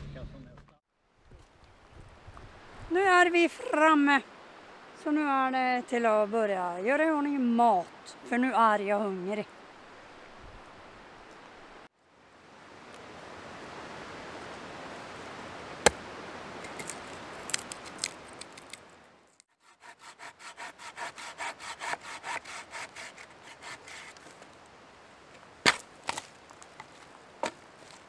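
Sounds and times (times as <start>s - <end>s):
wood cracking: 16.6s - 19.4s, 25.6s - 28.0s
small saw cutting branch: 19.6s - 24.4s.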